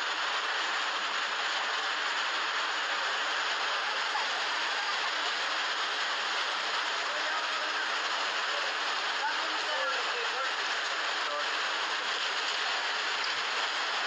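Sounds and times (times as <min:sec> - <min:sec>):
muddy floodwater rushing: 0:00.0 - 0:14.0.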